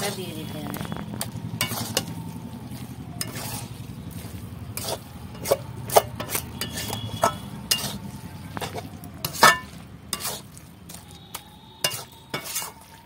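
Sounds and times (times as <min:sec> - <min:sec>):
steady low hum: 0:00.0 - 0:10.8
metal spatula scraping pan: 0:01.6 - 0:02.2, 0:03.2 - 0:10.6, 0:11.8 - 0:12.9.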